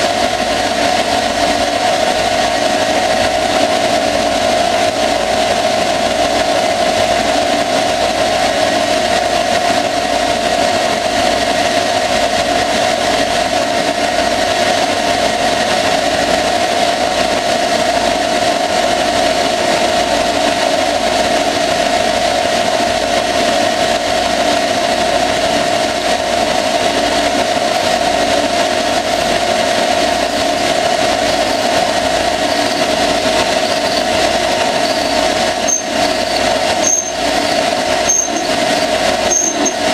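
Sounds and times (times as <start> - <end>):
metal lathe humming: 26.8 - 39.9.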